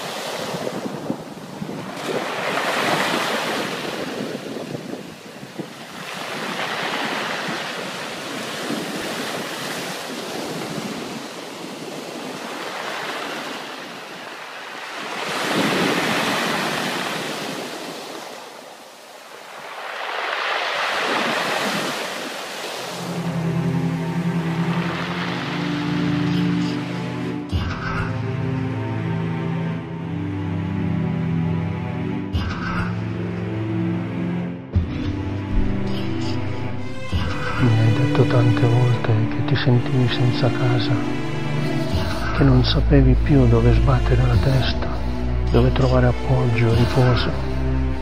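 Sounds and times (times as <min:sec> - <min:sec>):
wind on microphone: 0:00.0 - 0:14.3, 0:15.0 - 0:18.2
waves washing up a beach: 0:00.0 - 0:27.5.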